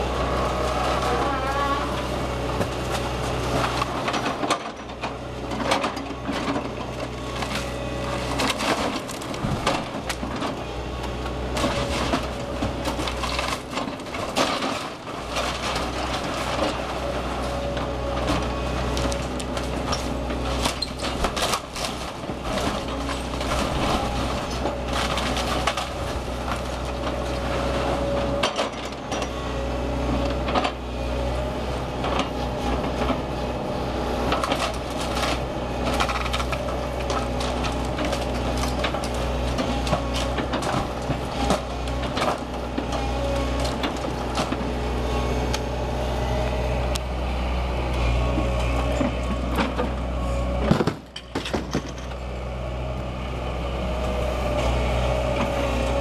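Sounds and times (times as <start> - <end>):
excavator engine humming: 0.0 - 56.0
wood cracking and splintering: 0.2 - 29.2, 34.1 - 45.7, 50.6 - 52.2
debris crunching: 2.5 - 29.1, 48.0 - 52.2.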